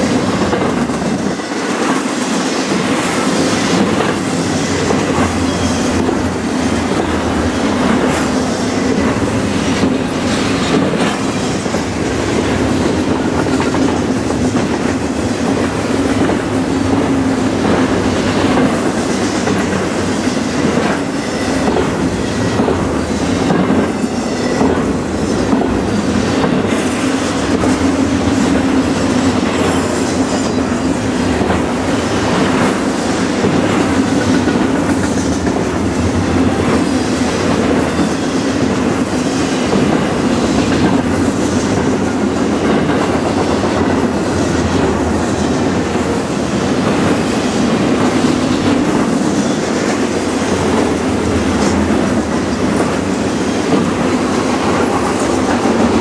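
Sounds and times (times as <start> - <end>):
clickety-clack of train wheels: 0.0 - 56.0
train wheels rumbling on rails: 0.0 - 56.0.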